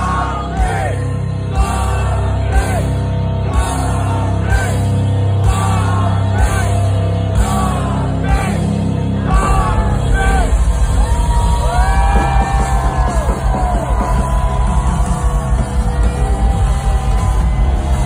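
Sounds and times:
vocals: 0:00.0 - 0:10.7
heavy metal band playing live: 0:00.0 - 0:18.0.

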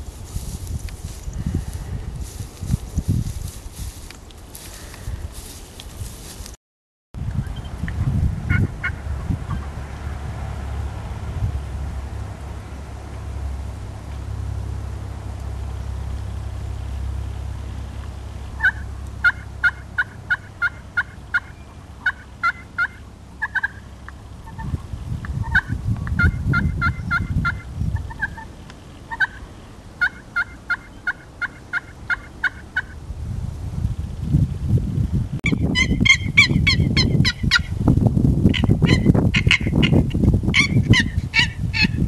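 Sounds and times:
low rumble: 0:00.0 - 0:06.6, 0:07.2 - 0:28.4
low hum: 0:07.2 - 0:30.0
turkey yelping: 0:18.6 - 0:24.7, 0:25.4 - 0:28.5, 0:29.1 - 0:29.4, 0:30.0 - 0:33.0, 0:35.7 - 0:37.7, 0:38.5 - 0:42.0.

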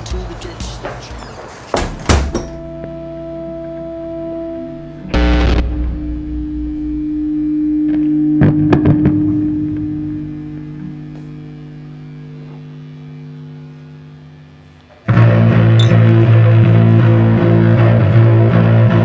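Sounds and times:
sharp guitar strikes: 0:02.3 - 0:19.0
sustained electric guitar note: 0:02.4 - 0:19.0.

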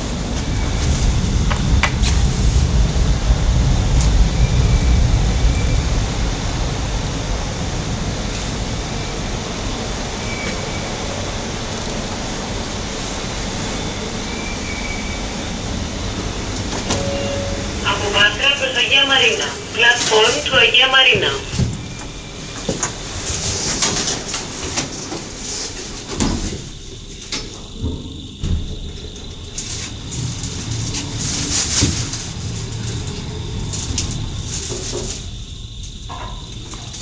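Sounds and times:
metro train rumble: 0:00.0 - 0:37.0
faint short high tones: 0:16.8 - 0:18.0.

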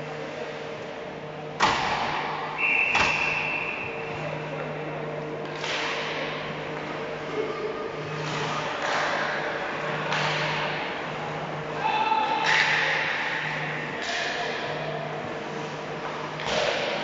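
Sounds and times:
low machinery hum: 0:00.0 - 0:17.0
referee's whistle: 0:02.6 - 0:04.0
clatter of hockey play: 0:05.4 - 0:06.2, 0:08.2 - 0:09.4, 0:10.1 - 0:10.8, 0:16.3 - 0:17.0.

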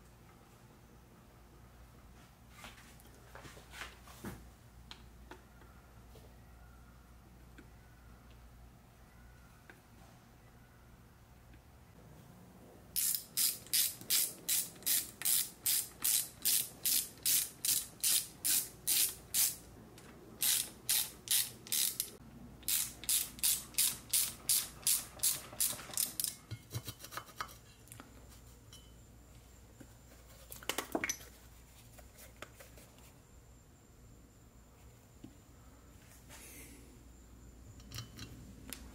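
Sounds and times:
ratchet wrench clicking: 0:13.0 - 0:19.6, 0:20.4 - 0:26.4.

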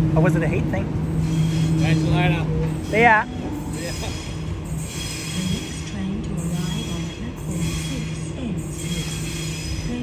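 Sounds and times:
electric train humming: 0:00.0 - 0:10.0.

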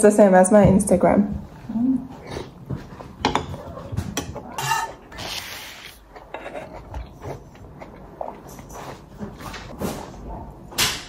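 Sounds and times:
dishes and cutlery clinking: 0:02.9 - 0:05.2, 0:06.2 - 0:10.2.

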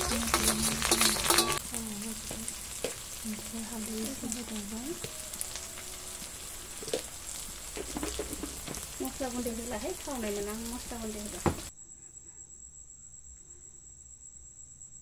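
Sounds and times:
metal ladle scraping wok: 0:00.0 - 0:01.6
paste sizzling in hot oil: 0:00.0 - 0:11.7.

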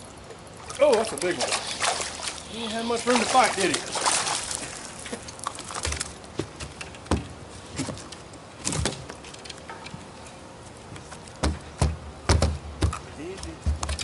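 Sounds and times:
knocks and thumps on boat deck: 0:11.4 - 0:14.0.

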